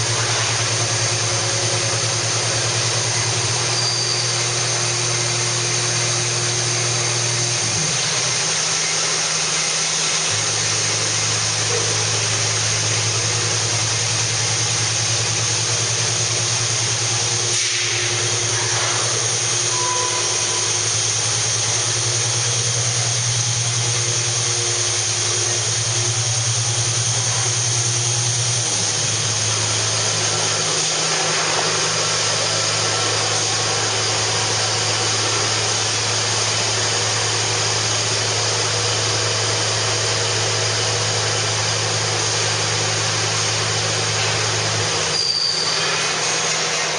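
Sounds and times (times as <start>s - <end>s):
industrial machinery humming: 0.0s - 46.9s
machinery hiss: 11.7s - 36.4s.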